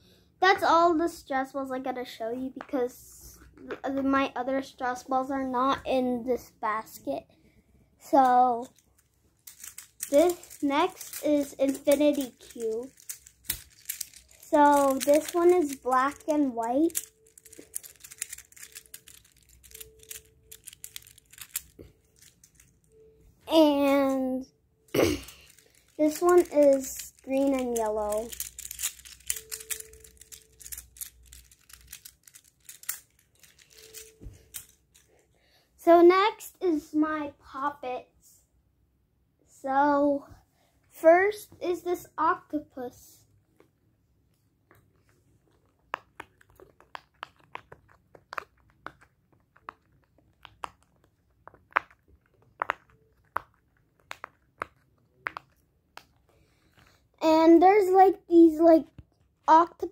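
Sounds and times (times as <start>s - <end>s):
plastic blocks clicking: 8.2s - 23.6s, 25.2s - 35.2s, 45.6s - 56.9s.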